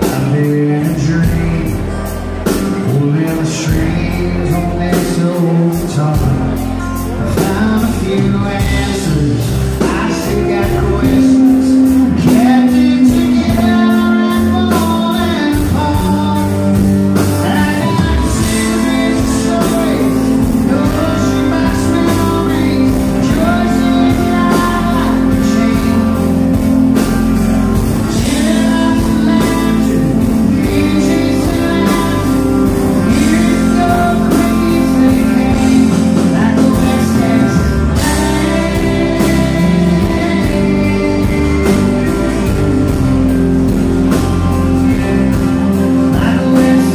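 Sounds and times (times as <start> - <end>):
bass guitar: 0.0 - 46.9
drum kit beat: 0.0 - 46.9
electric guitar: 0.0 - 46.9
man singing: 0.0 - 46.9.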